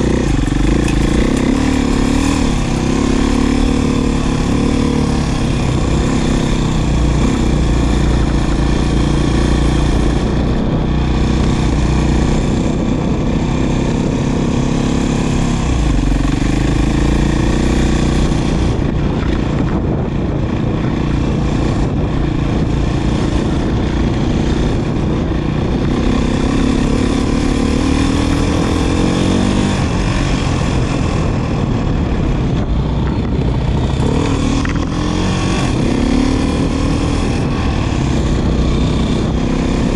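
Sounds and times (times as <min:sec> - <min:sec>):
dirt bike engine revving: 0:00.0 - 0:31.4, 0:33.7 - 0:39.9.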